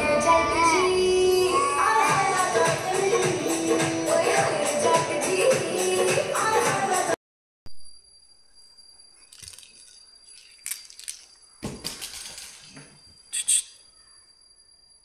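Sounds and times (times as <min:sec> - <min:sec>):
faint high whine: 0:07.7 - 0:15.0.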